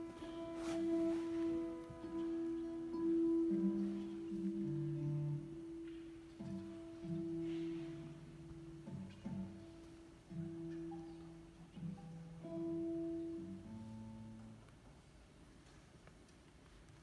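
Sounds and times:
classical guitar: 0.0 - 17.0.

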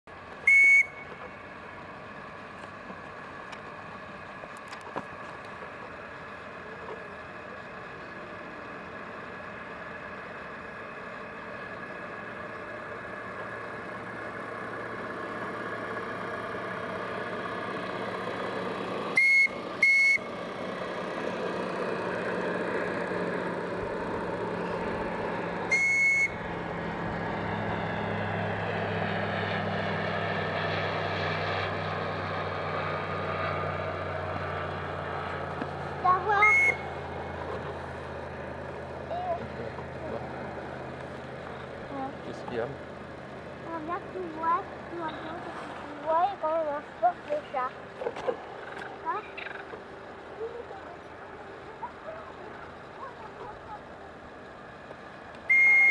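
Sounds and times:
steam whistle blasts: 0.4 - 1.1, 19.2 - 20.3, 25.7 - 26.4, 55.5 - 55.9.

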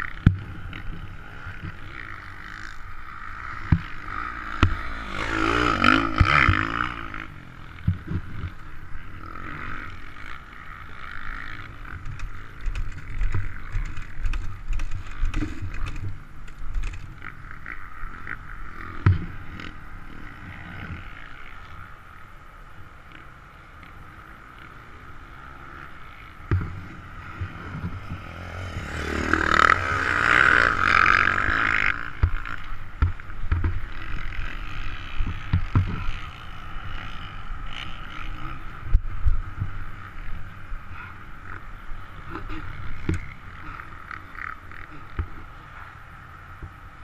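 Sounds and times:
dirt bike engine revving: 0.0 - 47.0
knocks and thumps on rough track: 0.2 - 1.8, 3.6 - 7.0, 11.9 - 17.2, 26.4 - 34.4, 35.1 - 36.4.

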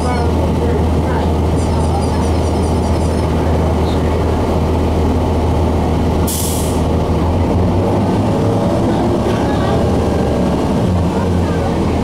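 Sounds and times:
diesel bus engine running: 0.0 - 12.0
air brake hiss: 6.3 - 6.8.

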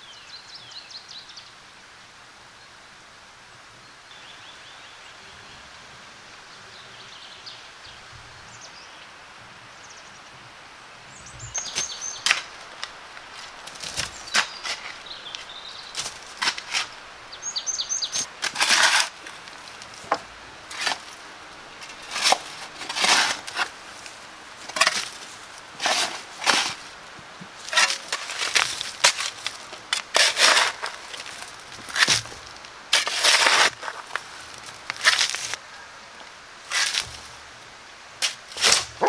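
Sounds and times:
small bird chirping: 11.1 - 12.3, 17.3 - 18.3
shovel digging loose soil: 11.7 - 15.0, 16.0 - 17.0, 18.1 - 21.2, 21.8 - 26.9, 27.6 - 35.6, 36.7 - 37.2, 38.2 - 39.0.

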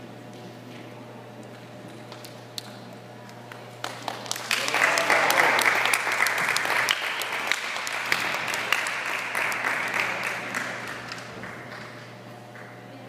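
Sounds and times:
audience applause: 3.5 - 12.8.

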